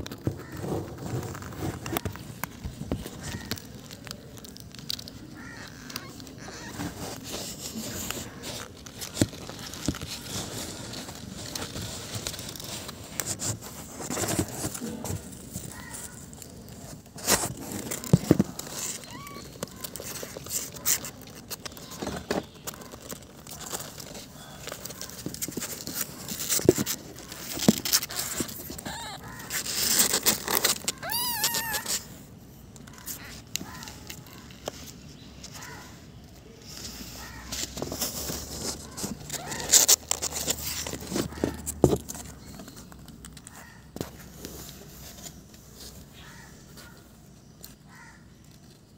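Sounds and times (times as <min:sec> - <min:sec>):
rustling and scraping in cardboard box: 0:00.0 - 0:48.9
kitten crying: 0:19.0 - 0:19.5, 0:28.8 - 0:29.5, 0:30.9 - 0:32.1.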